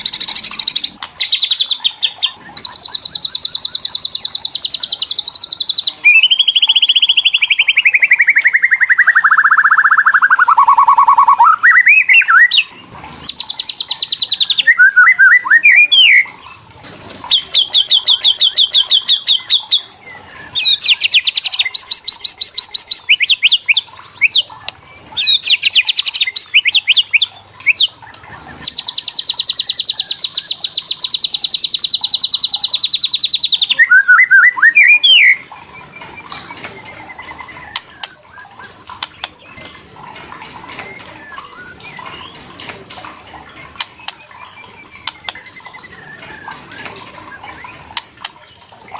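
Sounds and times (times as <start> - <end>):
high bird trills: 0.0 - 16.6, 25.2 - 42.6.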